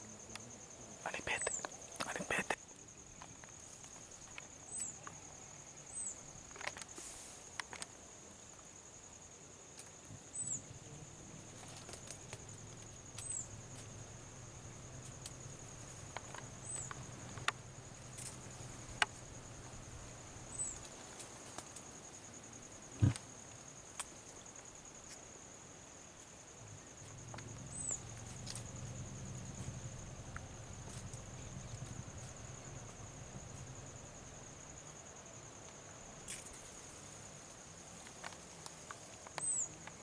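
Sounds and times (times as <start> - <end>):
faint low hum: 26.5 - 37.7.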